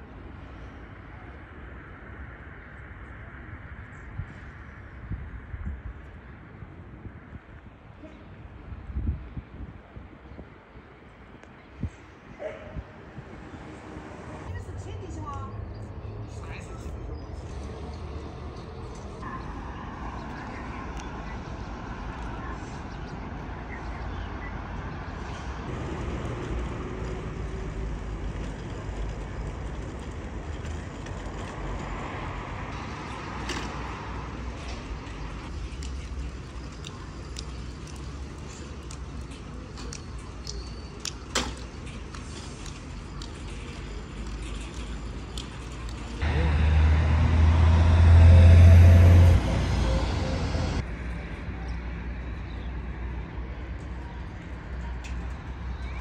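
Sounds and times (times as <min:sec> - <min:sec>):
street ambience: 0:00.0 - 0:56.0
passing cars rumbling: 0:12.2 - 0:23.6, 0:24.3 - 0:39.6, 0:41.4 - 0:51.3
motor vehicle passing by: 0:13.0 - 0:20.6, 0:45.6 - 0:50.9.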